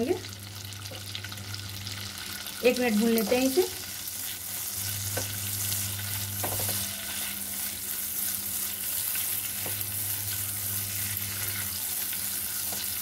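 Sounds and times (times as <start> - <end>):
onions sizzling in a pan: 0.0 - 13.0
spatula scraping pan: 4.2 - 13.0.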